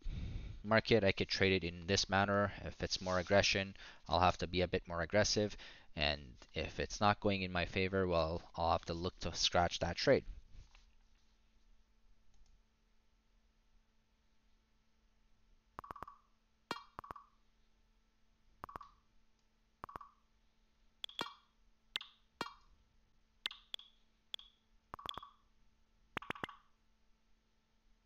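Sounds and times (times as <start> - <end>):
short electronic blips: 23.5 - 25.4.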